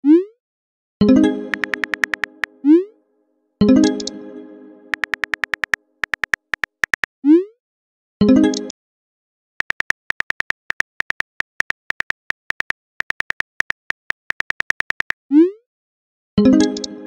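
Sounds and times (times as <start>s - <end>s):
phone keyboard clicks: 1.5s - 2.5s, 4.9s - 7.1s, 9.6s - 15.2s.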